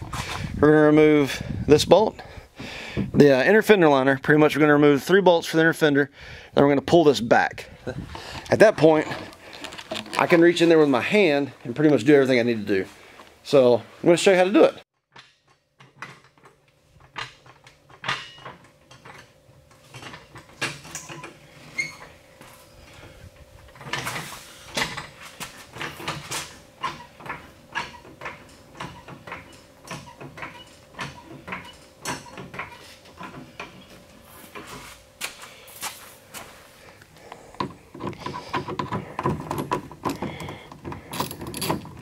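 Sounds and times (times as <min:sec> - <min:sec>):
floor jack clicking and clunking: 0:08.0 - 0:10.8, 0:15.1 - 0:22.0, 0:23.0 - 0:35.4, 0:37.2 - 0:42.0.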